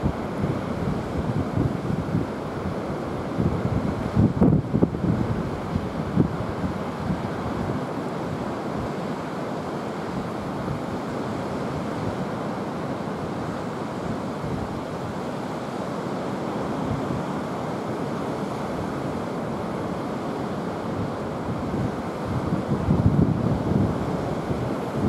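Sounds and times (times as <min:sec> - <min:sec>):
wind buffeting microphone: 0:00.0 - 0:07.9, 0:20.9 - 0:25.0.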